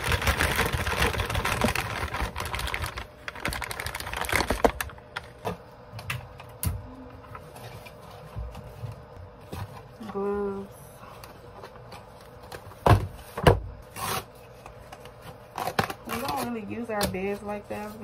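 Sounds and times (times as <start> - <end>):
bag rustling and crinkling: 0.0 - 5.0.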